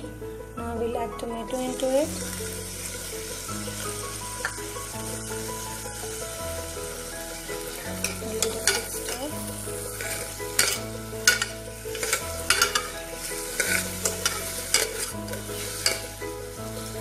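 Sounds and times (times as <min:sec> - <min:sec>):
soft background music: 0:00.0 - 0:17.0
vegetables frying: 0:00.0 - 0:17.0
ladle clinking and scraping pot: 0:07.7 - 0:16.2.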